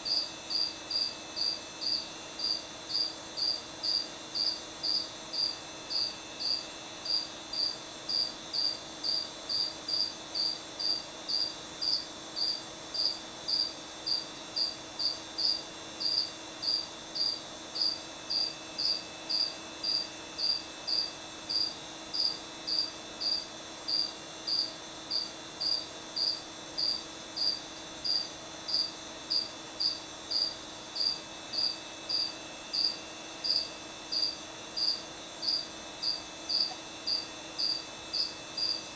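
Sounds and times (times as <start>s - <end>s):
cricket chirping: 0.0s - 38.9s.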